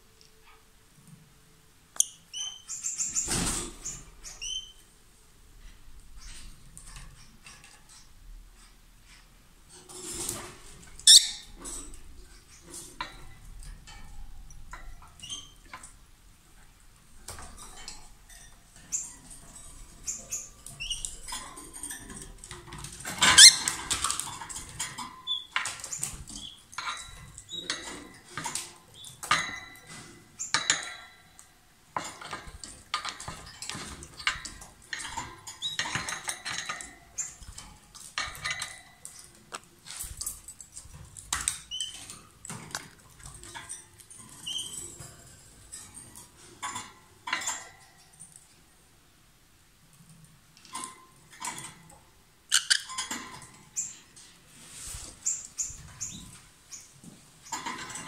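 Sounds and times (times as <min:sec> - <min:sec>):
lovebird chirping and squeaking: 0:02.0 - 0:04.8, 0:11.0 - 0:11.6, 0:18.8 - 0:19.2, 0:19.9 - 0:21.4, 0:23.2 - 0:24.0, 0:25.2 - 0:27.9, 0:35.0 - 0:37.6, 0:41.5 - 0:42.1, 0:44.2 - 0:44.8, 0:52.5 - 0:53.1, 0:55.2 - 0:56.9.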